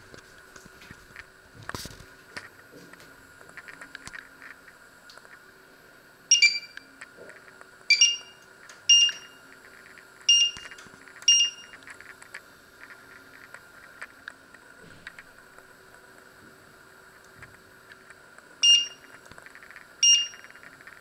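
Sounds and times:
hob touch control beeps: 0:06.3 - 0:06.8, 0:07.9 - 0:09.4, 0:10.3 - 0:11.7, 0:18.6 - 0:19.1, 0:20.0 - 0:20.5.

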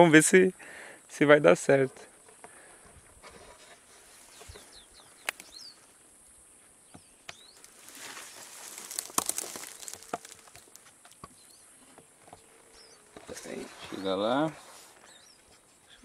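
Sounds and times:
steady high hiss: 0:00.0 - 0:10.8
dry grass rustling and crackling: 0:03.2 - 0:06.0, 0:07.4 - 0:11.5
birds chirping: 0:03.9 - 0:16.0.

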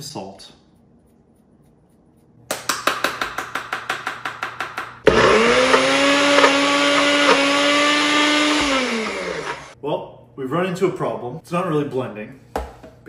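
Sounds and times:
blender motor whining: 0:05.0 - 0:09.8.

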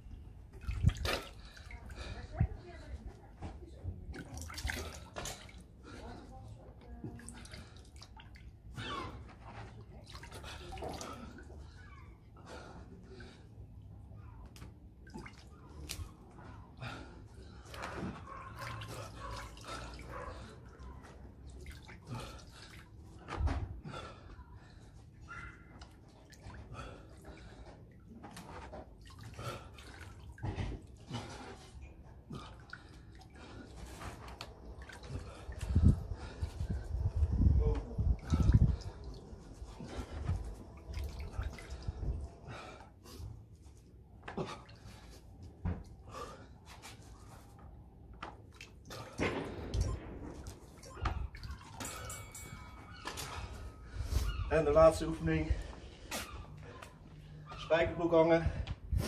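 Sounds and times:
water splashing in a plastic tub: 0:00.5 - 0:02.9, 0:03.9 - 0:11.8, 0:12.4 - 0:24.1, 0:25.2 - 0:43.2, 0:48.2 - 0:52.2.

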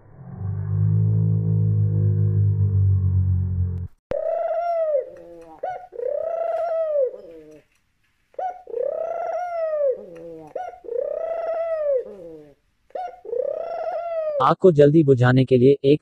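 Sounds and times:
dove cooing: 0:04.1 - 0:07.7, 0:08.3 - 0:14.4.

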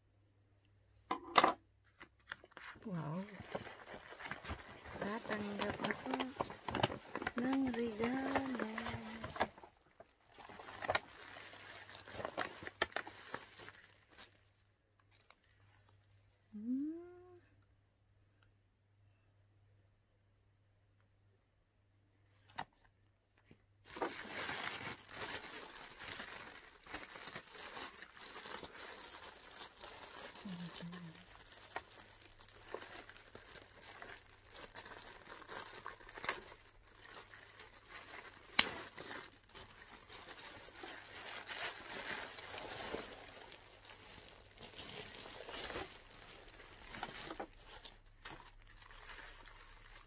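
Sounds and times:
plastic bags crinkling: 0:02.3 - 0:15.9, 0:23.8 - 0:50.0.

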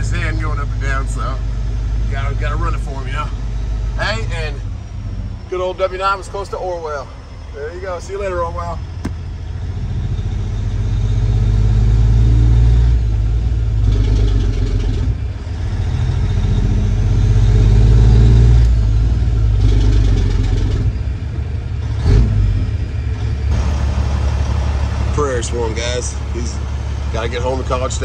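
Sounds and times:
truck diesel engine under load: 0:00.0 - 0:28.0
thump: 0:09.0 - 0:09.2.

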